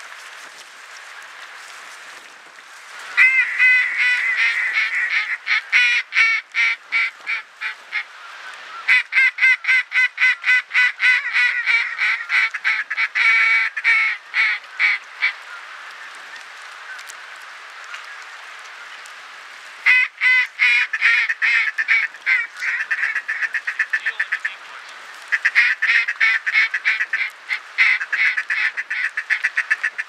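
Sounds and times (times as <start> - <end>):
duck quacking: 3.2 - 8.1, 8.8 - 15.4, 19.8 - 30.0.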